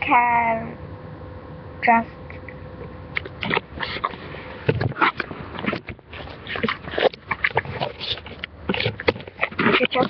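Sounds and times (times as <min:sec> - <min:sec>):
microphone handling noise: 0:03.2 - 0:10.0.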